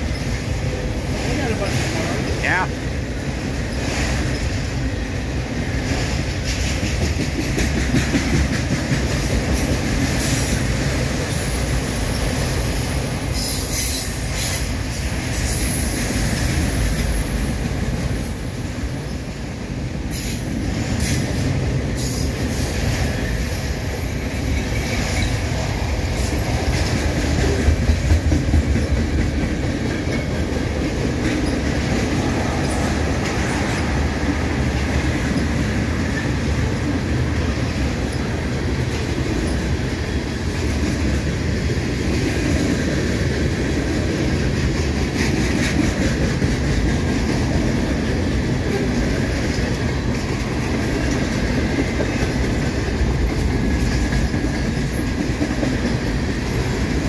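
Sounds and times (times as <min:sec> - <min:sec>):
freight cars rolling on rails: 0:00.0 - 0:57.0
wheels clacking over rail joint: 0:05.7 - 0:18.2, 0:24.2 - 0:57.0.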